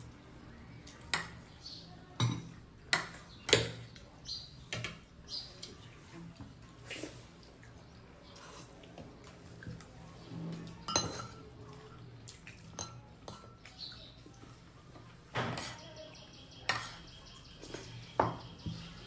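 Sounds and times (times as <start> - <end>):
dishes and utensils clinking: 2.2 - 3.8, 10.5 - 13.7.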